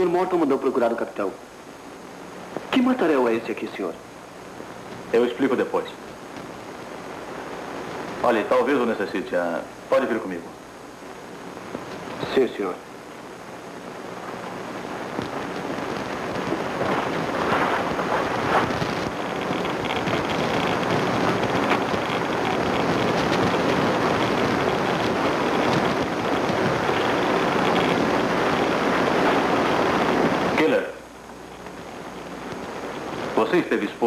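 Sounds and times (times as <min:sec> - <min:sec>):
steady wind-like rushing: 0:14.0 - 0:30.7.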